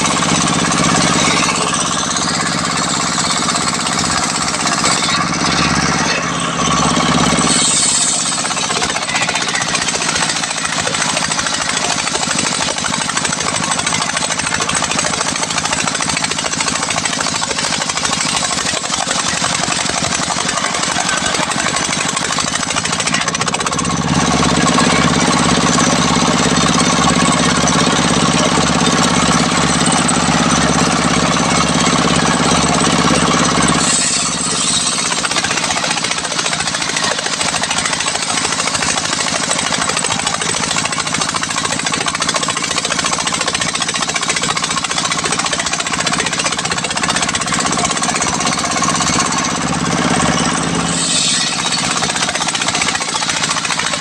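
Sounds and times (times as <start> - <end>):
steady low drone: 0.0 - 10.8
circular sawmill cutting wood: 0.0 - 54.0.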